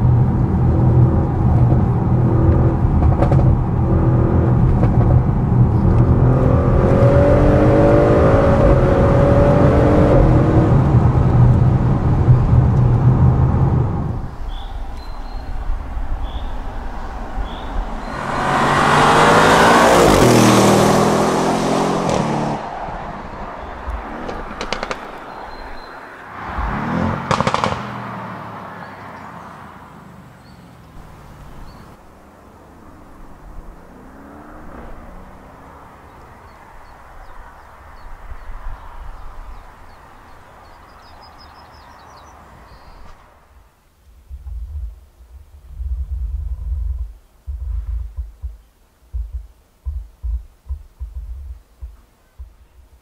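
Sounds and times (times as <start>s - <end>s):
wind buffeting microphone: 0.0s - 21.2s, 44.1s - 52.9s
exhaust crackles: 0.0s - 25.9s, 26.5s - 28.1s, 42.9s - 53.0s
car engine passing by: 0.0s - 43.7s.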